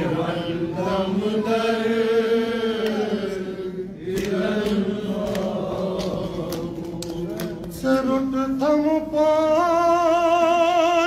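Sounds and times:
man chanting: 7.2s - 11.0s.

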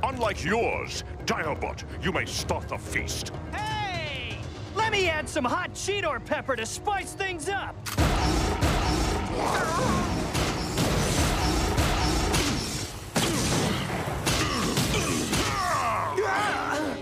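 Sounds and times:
blaster shots and impacts: 8.0s - 15.6s.

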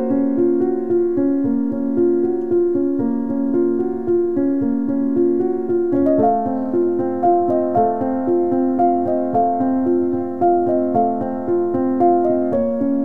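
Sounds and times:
gentle keyboard notes: 0.0s - 13.0s.

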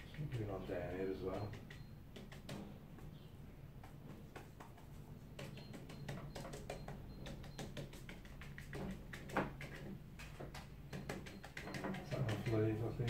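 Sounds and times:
paintbrush tapping on paper: 1.3s - 3.1s, 3.8s - 12.9s.

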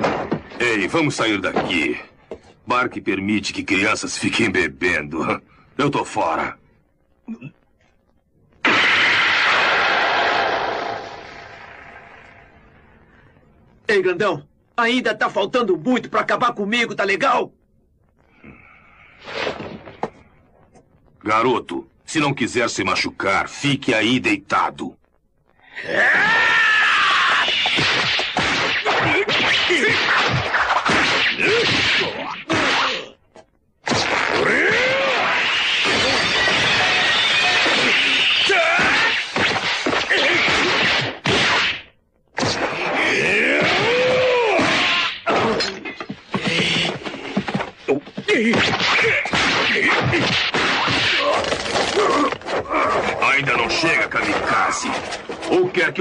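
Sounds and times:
cartoon punch and kick impacts: 8.6s - 10.8s, 27.4s - 33.1s, 33.8s - 51.4s
long falling cry: 25.8s - 27.5s
grunts and cries of effort: 42.9s - 50.3s.

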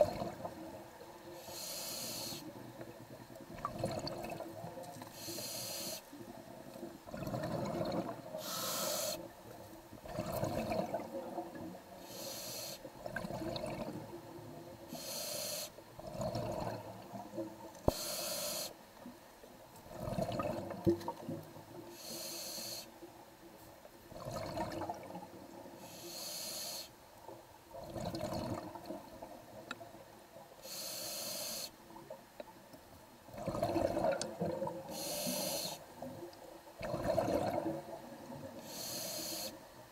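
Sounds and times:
exhaled air bubbling: 0.0s - 1.6s, 3.0s - 5.3s, 6.9s - 9.2s, 10.0s - 11.8s, 12.9s - 14.6s, 15.9s - 18.0s, 19.8s - 21.6s, 24.1s - 25.6s, 27.7s - 29.8s, 33.3s - 36.2s, 36.8s - 38.9s
regulator hissing inhalation: 1.4s - 2.5s, 5.2s - 6.1s, 8.4s - 9.3s, 12.0s - 12.9s, 14.9s - 15.8s, 17.9s - 18.8s, 21.9s - 22.9s, 25.8s - 26.9s, 30.6s - 31.8s, 34.9s - 35.8s, 38.6s - 39.6s.

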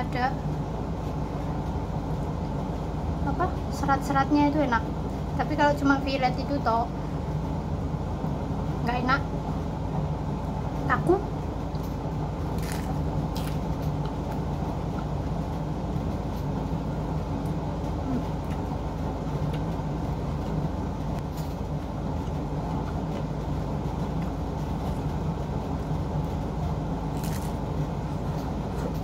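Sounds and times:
steady low hum: 0.0s - 29.0s
lettuce being chewed: 12.5s - 14.5s, 27.1s - 27.8s.

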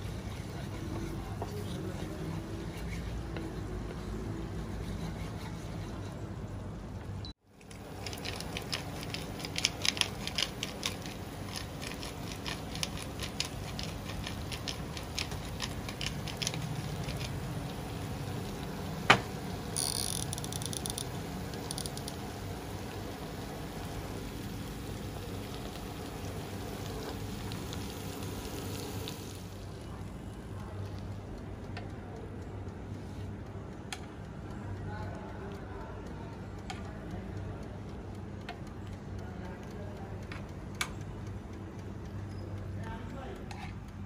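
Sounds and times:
pepper mill grinding: 7.6s - 18.7s, 19.7s - 22.3s
sauce sizzling in a pan: 22.0s - 29.6s.

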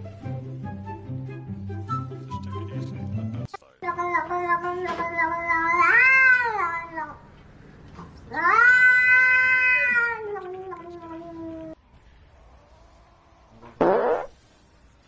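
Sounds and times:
cat yowling: 5.2s - 7.2s, 8.3s - 11.8s.

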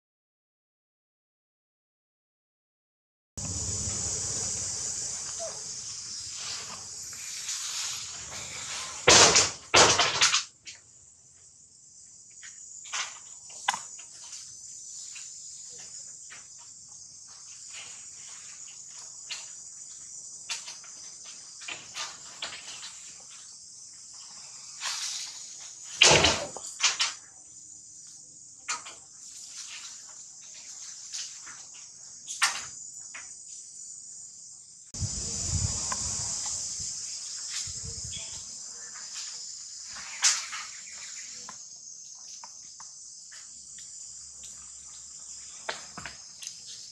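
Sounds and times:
insect chorus drone: 3.4s - 46.9s.

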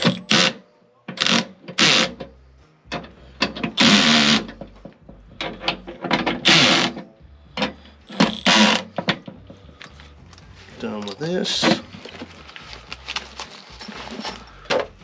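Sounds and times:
drill clicks: 1.2s - 2.2s, 3.8s - 4.5s, 8.1s - 8.9s
cordless drill motor bursts: 8.2s - 8.9s.

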